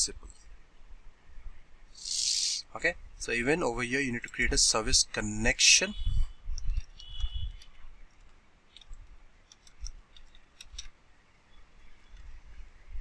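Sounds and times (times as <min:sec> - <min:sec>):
keyboard typing: 0:06.6 - 0:10.9.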